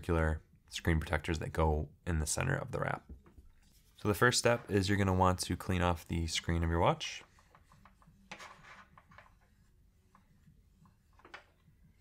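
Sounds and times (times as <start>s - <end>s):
cloth wiping a screen: 3.5s - 12.0s.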